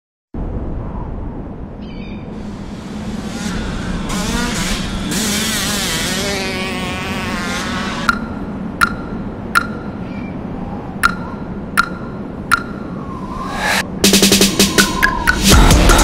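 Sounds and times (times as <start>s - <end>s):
motorcycle engine revving past: 2.6s - 8.1s
sharp ringing ticks: 8.1s - 10.0s, 11.0s - 12.9s.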